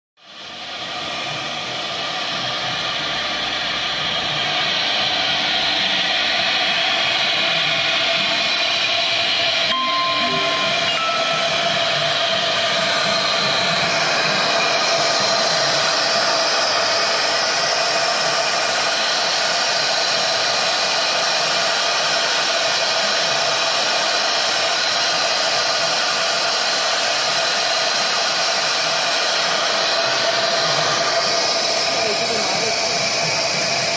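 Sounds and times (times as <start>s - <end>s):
router spindle whining: 0.8s - 22.1s.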